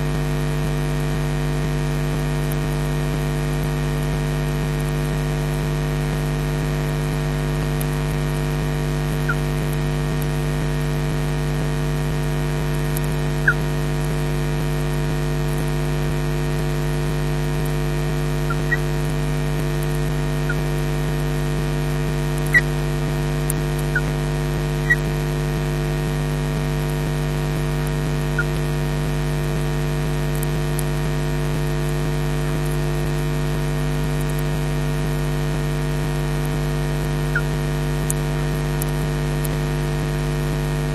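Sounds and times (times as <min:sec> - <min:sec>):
electrical hum with hiss: 0:00.0 - 0:40.9
faint high chirps: 0:13.4 - 0:13.6, 0:18.5 - 0:18.8.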